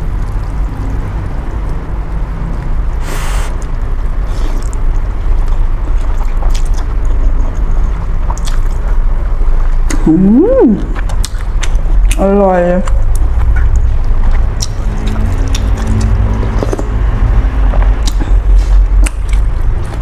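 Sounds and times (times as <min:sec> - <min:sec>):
low rumble: 0:00.0 - 0:20.0
person slurping noodles: 0:03.0 - 0:03.6.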